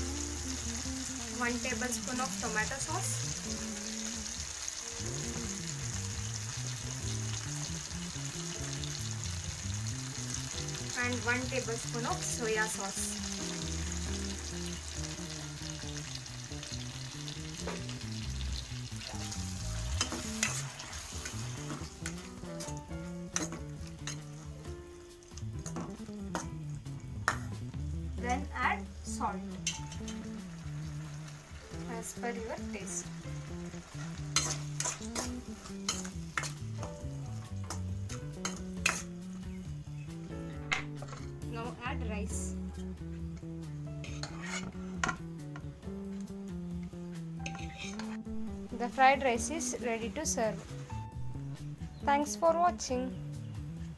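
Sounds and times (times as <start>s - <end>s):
vegetables sizzling in frying pan: 0.0s - 40.1s, 47.4s - 52.9s
background music: 0.0s - 53.9s
spoon clinking and scraping pan: 19.9s - 24.5s, 29.6s - 30.3s, 34.1s - 36.6s, 37.6s - 39.2s, 40.7s - 41.4s, 44.0s - 45.3s, 47.4s - 48.3s.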